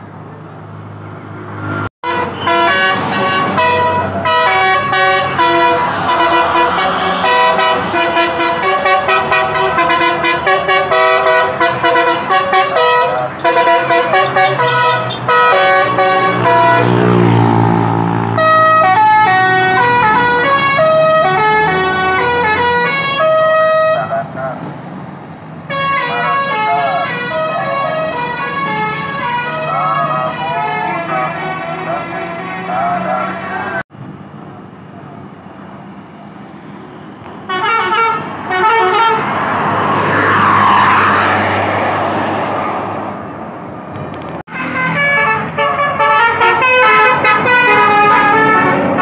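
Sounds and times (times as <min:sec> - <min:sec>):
road traffic: 0:00.0 - 0:49.0
bus air horn melody: 0:02.0 - 0:17.4, 0:18.3 - 0:24.2, 0:25.7 - 0:33.8, 0:37.5 - 0:39.3, 0:44.5 - 0:49.0.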